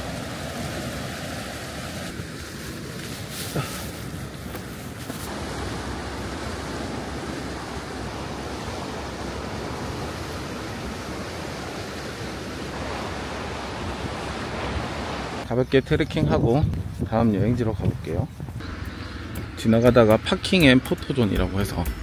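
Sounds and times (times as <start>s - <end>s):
sea surf: 0.0s - 15.5s.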